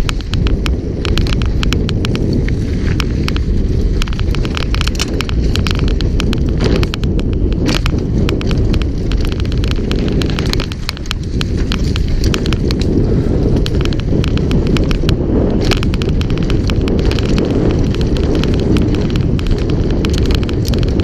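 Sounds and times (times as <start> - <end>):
bike chain and frame rattling: 0.0 - 21.0
knobby tyres rumbling on dirt: 0.0 - 21.0
wind buffeting microphone: 0.0 - 21.0.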